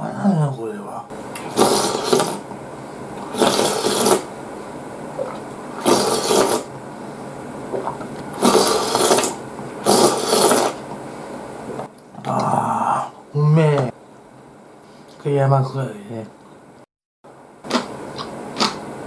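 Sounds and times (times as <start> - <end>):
person slurping broth: 1.5 - 2.4, 3.2 - 4.3, 5.2 - 6.7, 7.7 - 10.8.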